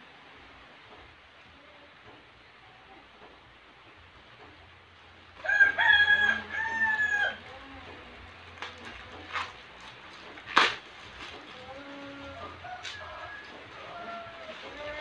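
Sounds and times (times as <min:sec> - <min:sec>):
rooster crowing: 0:05.4 - 0:07.5, 0:12.2 - 0:15.0.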